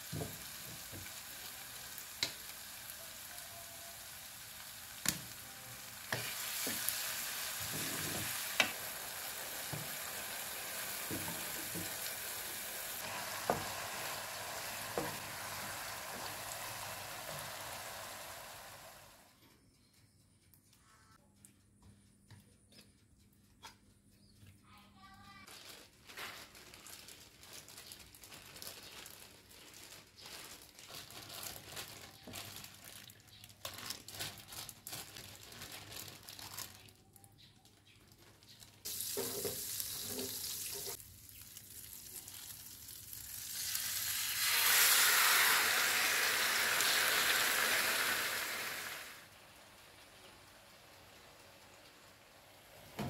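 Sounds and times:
food sizzling in a pan: 0:00.0 - 0:19.2, 0:38.8 - 0:53.0.

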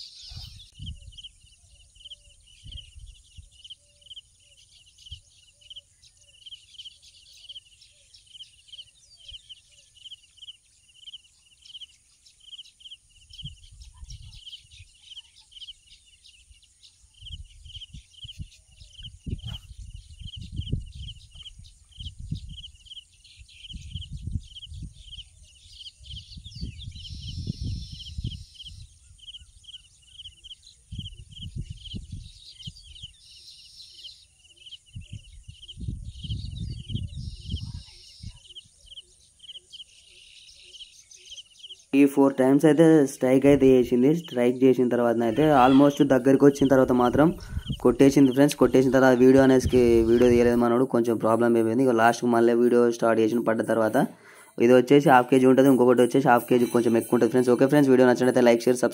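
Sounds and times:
high repeated chirps: 0:53.3 - 0:58.9.

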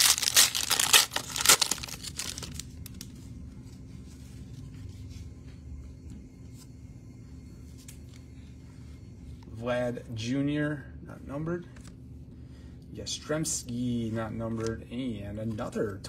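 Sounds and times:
wrapper tearing and crinkling: 0:00.0 - 0:03.0
cards being handled: 0:00.0 - 0:04.8
room hum: 0:00.0 - 0:16.0.

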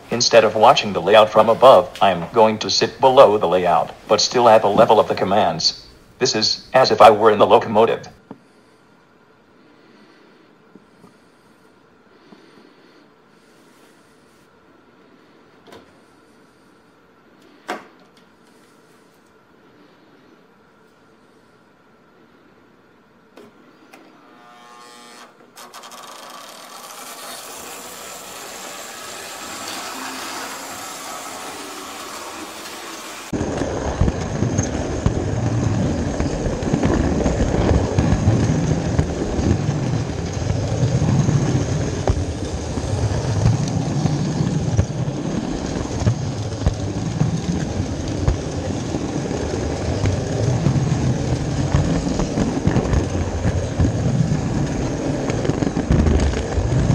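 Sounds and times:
model train running on track: 0:00.0 - 0:08.1, 0:25.6 - 0:56.9
wheels clattering on rails: 0:27.6 - 0:56.9.

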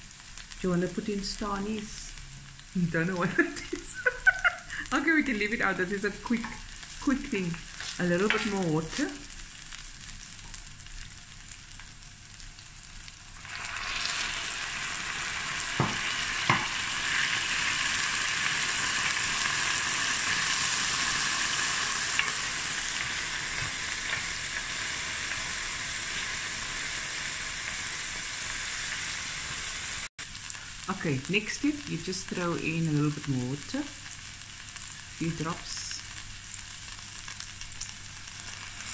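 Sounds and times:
onions sizzling in oil: 0:00.0 - 0:38.9
water hissing in hot oil: 0:00.0 - 0:38.9
wooden spoon knocking on pan: 0:15.8 - 0:16.7.

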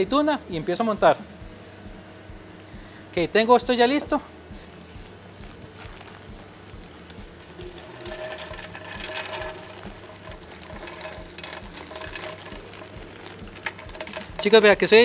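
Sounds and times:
utensils and dishes clicking: 0:06.8 - 0:15.0.

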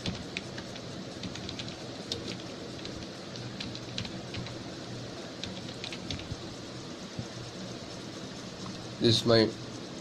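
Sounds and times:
keyboard keys clicking: 0:00.0 - 0:04.6, 0:05.4 - 0:06.4
faint hum: 0:00.0 - 0:10.0.

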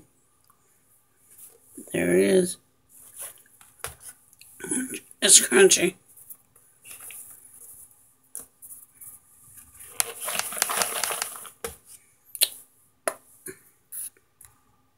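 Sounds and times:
hard chunks clicking in a bowl: 0:10.0 - 0:11.5.

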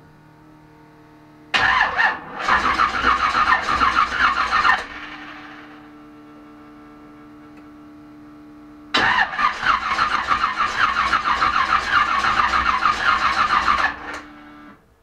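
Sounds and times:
starter cranking engine: 0:01.6 - 0:05.1, 0:09.0 - 0:14.2
steady low hum: 0:04.8 - 0:09.0.

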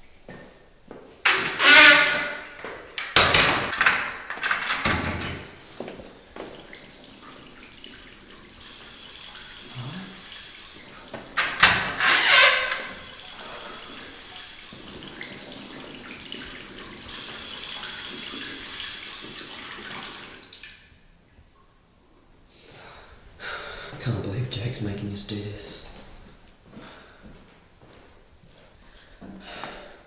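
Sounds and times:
water running from tap: 0:05.2 - 0:20.7.

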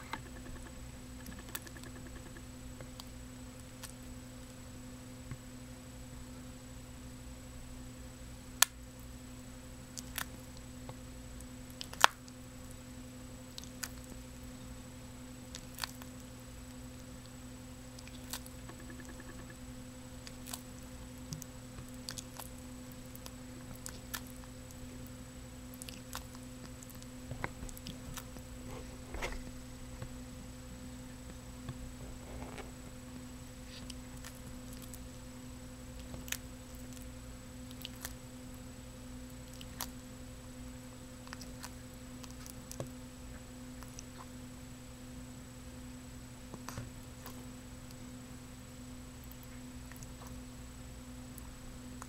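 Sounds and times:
turtle crunching insect: 0:00.0 - 0:04.2, 0:09.8 - 0:30.2, 0:31.1 - 0:44.6, 0:49.0 - 0:52.0
steady low hum: 0:00.0 - 0:52.0.

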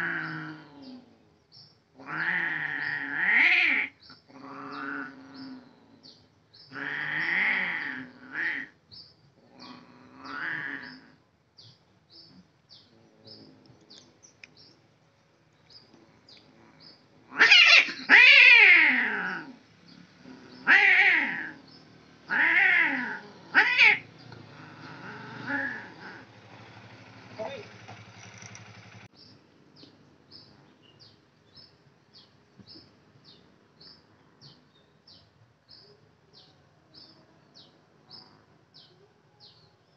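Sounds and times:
cats yowling: 0:02.0 - 0:04.0, 0:06.7 - 0:08.8, 0:09.7 - 0:11.2, 0:17.3 - 0:19.6, 0:20.2 - 0:21.6, 0:22.3 - 0:26.3.

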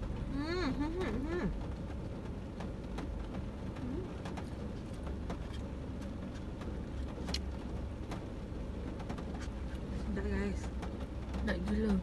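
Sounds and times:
car interior rumble: 0:00.0 - 0:12.0.

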